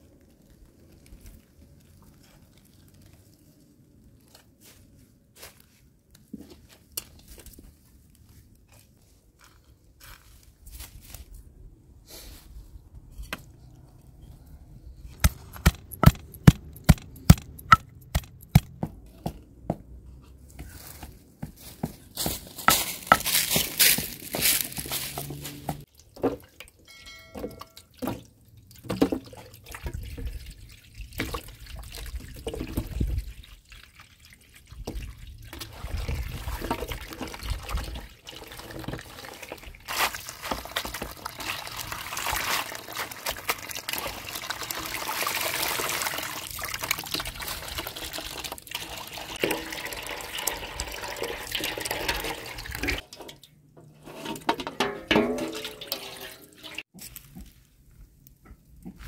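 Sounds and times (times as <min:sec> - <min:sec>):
hose water splashing into metal basin: 0:26.0 - 0:56.9.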